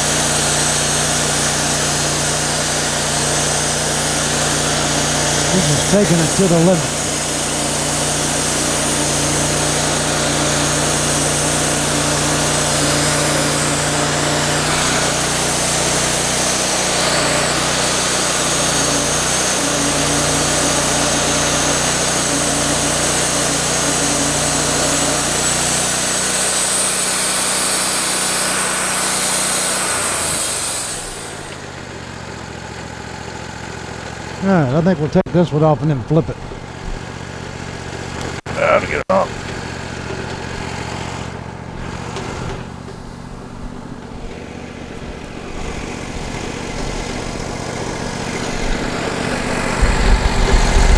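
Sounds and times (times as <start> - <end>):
band blade hissing through log: 0.0 - 31.7
sawmill engine droning: 0.0 - 50.9.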